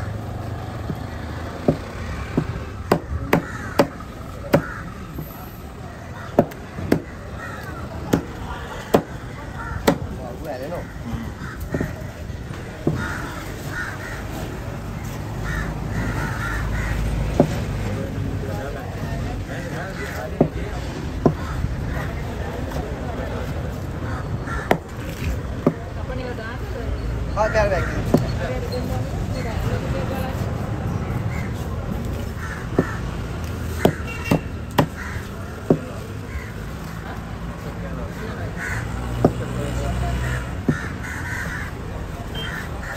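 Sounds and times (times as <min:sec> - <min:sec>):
crows cawing: 0:00.1 - 0:05.2, 0:05.9 - 0:17.6, 0:19.6 - 0:22.1, 0:24.0 - 0:25.8, 0:27.4 - 0:28.2, 0:31.3 - 0:37.1, 0:38.2 - 0:39.5, 0:40.1 - 0:42.9
cleaver chopping on wooden block: 0:01.6 - 0:04.7, 0:06.3 - 0:07.2, 0:08.1 - 0:09.2, 0:09.8 - 0:10.1, 0:24.6 - 0:25.0, 0:32.7 - 0:35.0, 0:35.6 - 0:36.0, 0:39.2 - 0:39.6
knife chopping on wooden board: 0:33.8 - 0:35.0.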